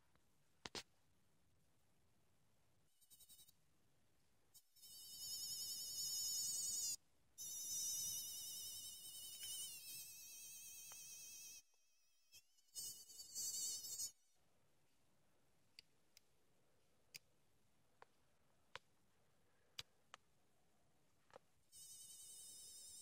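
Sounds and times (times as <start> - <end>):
electronic toy cicada buzz: 4.8 - 14.2, 21.8 - 23.0.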